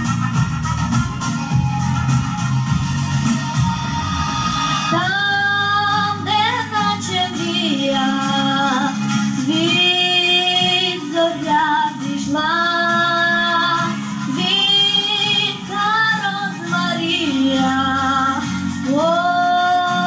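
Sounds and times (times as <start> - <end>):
low musical accompaniment: 0.0 - 19.4
girl singing into microphone: 4.9 - 20.0.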